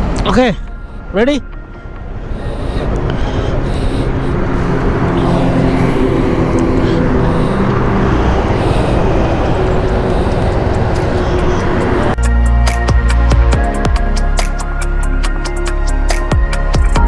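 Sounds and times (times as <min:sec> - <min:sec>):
road noise: 0:00.0 - 0:17.0
wind noise: 0:01.7 - 0:12.2.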